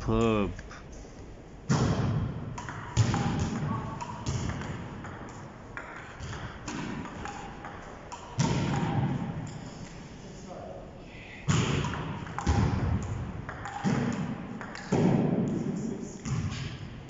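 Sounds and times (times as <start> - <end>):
table tennis ball hits: 1.7 - 9.4, 11.5 - 16.7.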